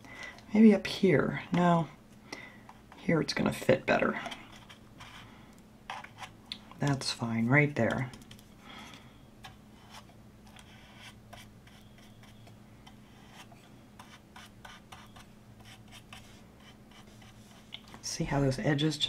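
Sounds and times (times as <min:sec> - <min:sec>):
steady low hum: 0:00.0 - 0:19.0
paintbrush scratching strokes: 0:09.4 - 0:17.7.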